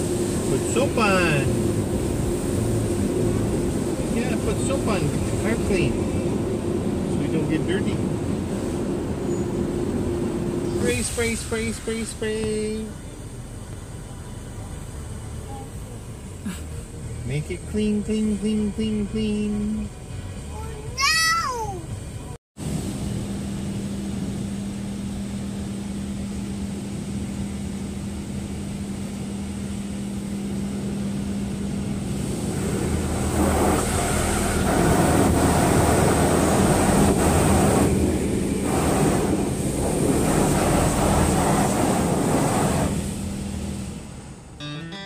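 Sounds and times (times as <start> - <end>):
water rushing over windshield: 0.0 - 9.2, 32.1 - 44.1
car wash machinery hum: 0.0 - 45.0.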